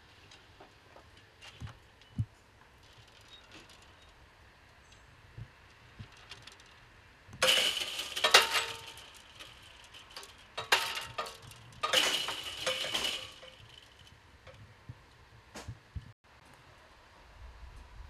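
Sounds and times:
metal barrier skirt rattling: 0:05.7 - 0:14.6.

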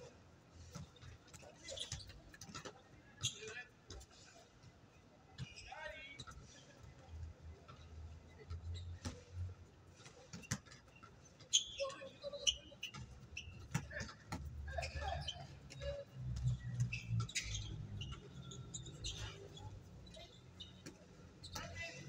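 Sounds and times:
sneaker squeaks on court: 0:00.8 - 0:03.6, 0:10.3 - 0:22.0
basketball bouncing: 0:12.8 - 0:15.8.

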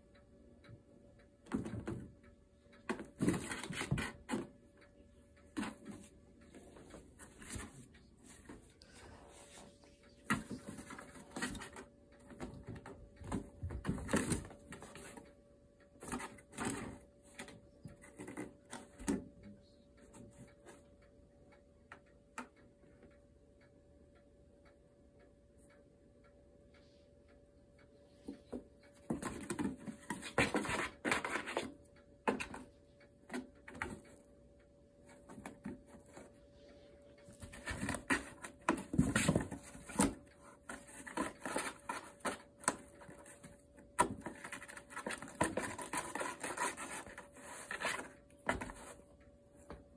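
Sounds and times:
kittens scratching cardboard box: 0:02.9 - 0:04.6, 0:10.2 - 0:15.2, 0:29.0 - 0:32.6, 0:37.3 - 0:49.0.

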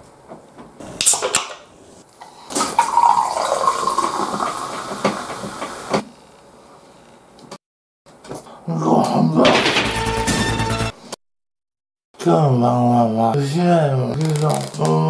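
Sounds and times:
can opening hiss: 0:01.0 - 0:01.6
drink fizzing into glass: 0:02.2 - 0:05.8.

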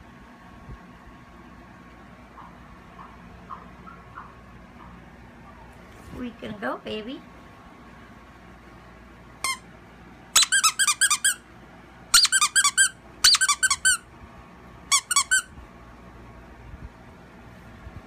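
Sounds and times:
dog toy squeaking: 0:09.4 - 0:09.6, 0:10.4 - 0:11.4, 0:12.1 - 0:14.0, 0:14.9 - 0:15.5.

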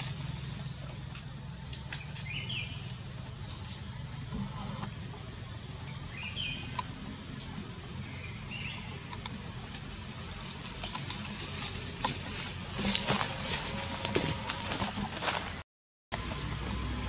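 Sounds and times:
faint clicks and rustles in branches: 0:00.0 - 0:05.4, 0:08.6 - 0:15.6
high insect whine: 0:00.0 - 0:15.5
bird chirps: 0:01.7 - 0:03.0, 0:05.8 - 0:07.0, 0:07.9 - 0:09.4.

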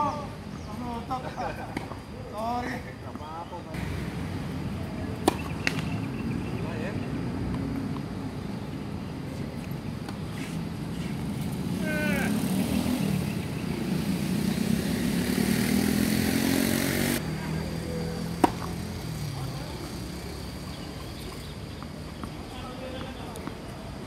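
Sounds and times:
tennis racket striking ball: 0:05.2 - 0:06.0, 0:18.4 - 0:18.7.

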